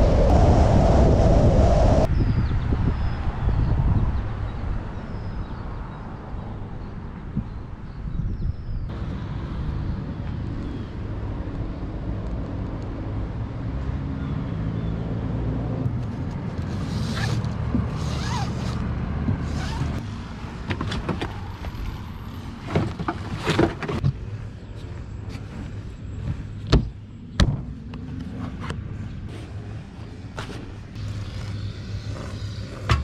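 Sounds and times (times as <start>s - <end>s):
steady low rumble: 0.0s - 5.0s.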